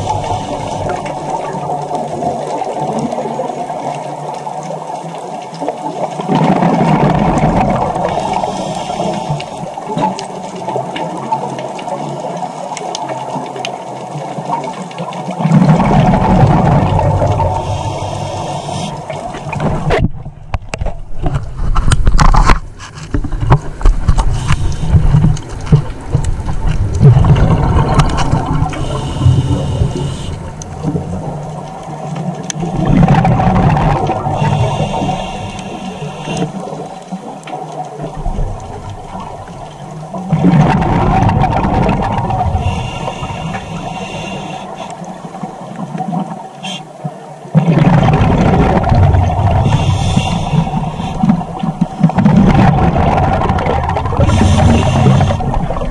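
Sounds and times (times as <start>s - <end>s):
exhaled bubbles rushing: 0.0s - 4.0s, 5.8s - 11.3s, 14.4s - 22.5s, 23.4s - 44.4s, 47.5s - 55.9s
underwater regulator breathing: 8.0s - 9.7s, 16.9s - 19.6s, 24.1s - 25.4s, 28.2s - 30.7s, 32.6s - 36.7s, 42.0s - 45.0s, 49.5s - 55.9s.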